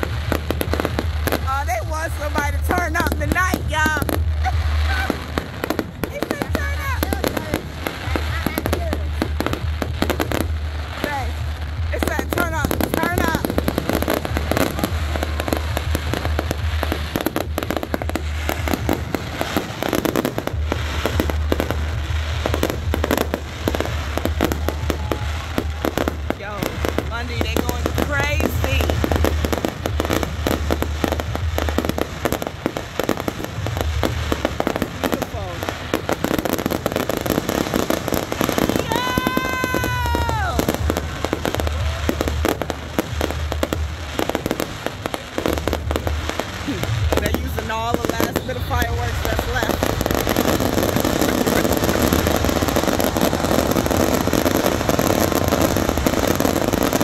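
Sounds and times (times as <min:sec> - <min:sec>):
low rumble: 0:00.0 - 0:38.6
fireworks crackling and banging: 0:00.0 - 0:57.0.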